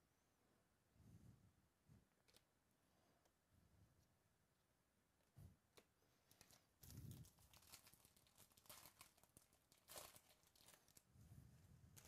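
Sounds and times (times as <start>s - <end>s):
foil wrapper crinkling and ripping: 6.3s - 11.0s.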